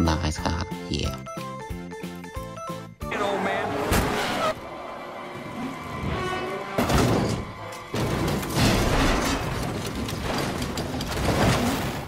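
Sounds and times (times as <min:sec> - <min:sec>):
car crash impacts: 0:06.7 - 0:12.0.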